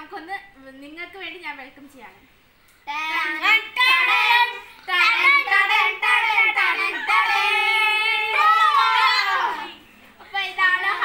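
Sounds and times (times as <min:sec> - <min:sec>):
children singing together: 0:03.0 - 0:11.0.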